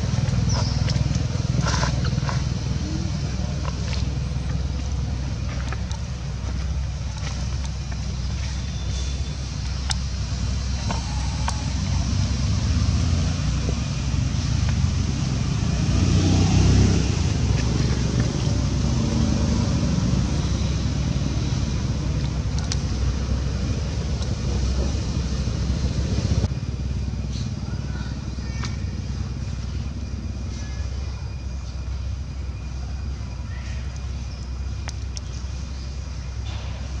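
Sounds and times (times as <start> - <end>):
road traffic rumble: 0.0 - 37.0
vehicle passing: 8.2 - 26.5.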